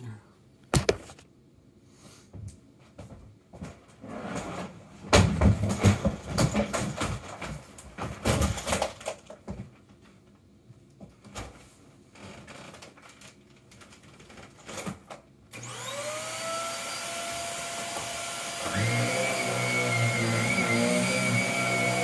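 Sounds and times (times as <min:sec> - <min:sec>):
handling knocks and bumps: 0:05.0 - 0:10.1
vacuum cleaner motor whine: 0:15.6 - 0:22.0.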